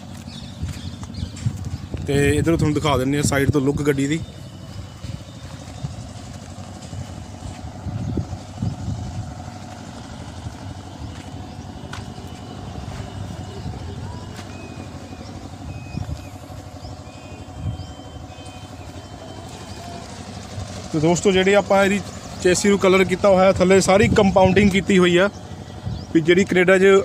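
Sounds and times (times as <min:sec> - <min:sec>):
vehicle engine rumbling: 0:00.0 - 0:27.0.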